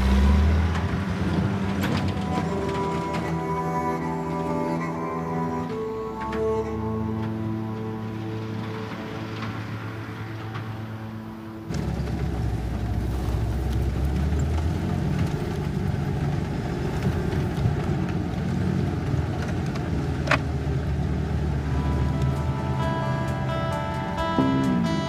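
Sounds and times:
music playing: 0:00.0 - 0:12.2, 0:21.3 - 0:25.0
film score music: 0:00.0 - 0:15.6, 0:20.6 - 0:25.0
car engine and road rumble: 0:00.0 - 0:25.0.

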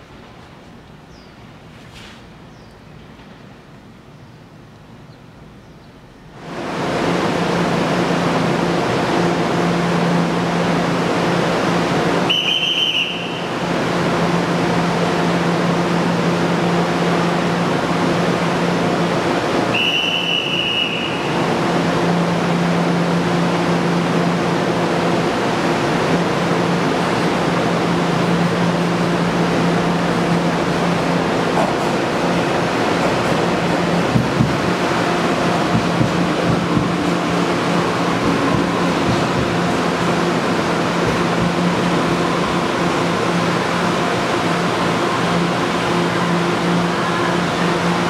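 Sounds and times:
electric train humming: 0:00.0 - 0:48.0
shrill whistle: 0:12.3 - 0:13.5, 0:19.7 - 0:21.3.

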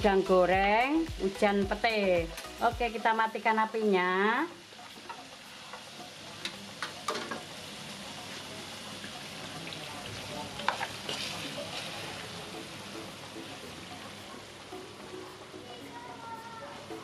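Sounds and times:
sambal sizzling in a wok: 0:00.0 - 0:17.0
metal utensils scraping a pan: 0:10.6 - 0:12.4.

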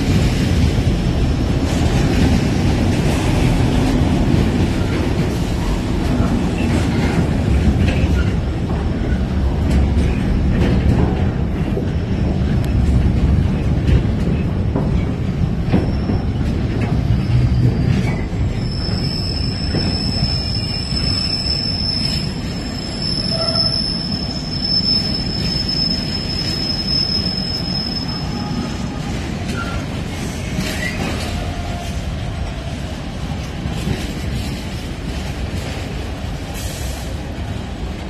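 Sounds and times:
train wheels rumbling on rail: 0:00.0 - 0:38.0
high wheel squeal: 0:17.1 - 0:28.8.

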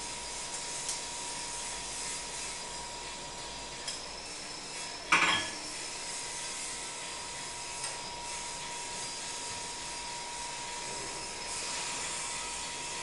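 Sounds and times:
steady hiss: 0:10.8 - 0:13.0.

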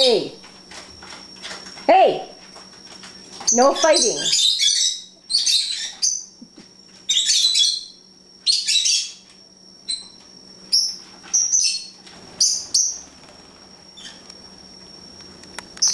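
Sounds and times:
lovebirds chattering: 0:03.3 - 0:09.2, 0:09.8 - 0:13.2
bird chirps: 0:03.5 - 0:06.4, 0:07.1 - 0:09.2.

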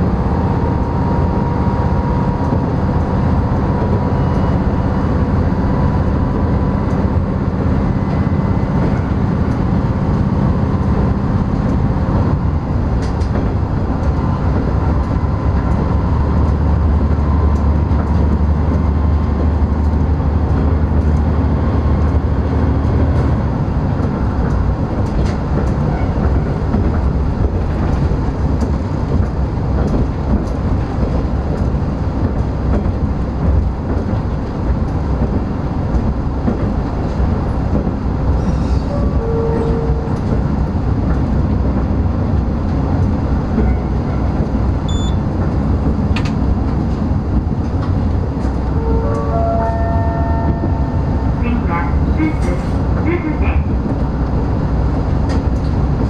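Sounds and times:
diesel engine drone: 0:00.0 - 0:56.0
wheel and rail noise: 0:00.0 - 0:56.0.

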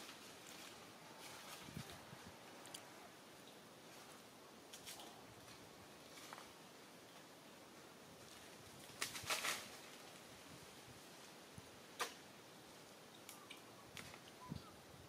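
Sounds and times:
rustling: 0:00.0 - 0:03.0, 0:03.8 - 0:07.3, 0:08.2 - 0:10.4
small ticks: 0:13.1 - 0:14.4.

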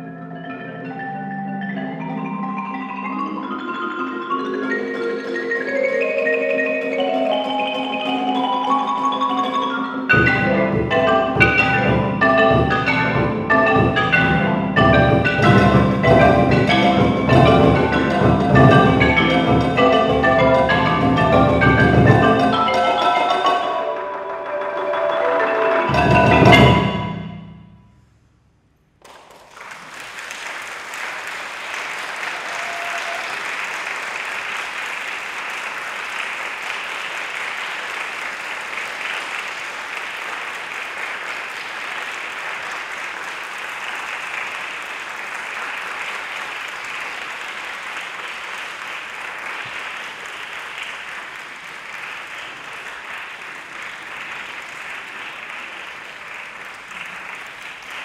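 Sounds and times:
audience applauding: 0:14.8 - 0:26.8, 0:29.0 - 0:58.0.

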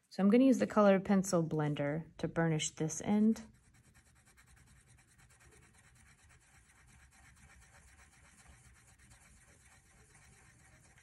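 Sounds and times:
pencil scratching on paper: 0:03.4 - 0:11.0.

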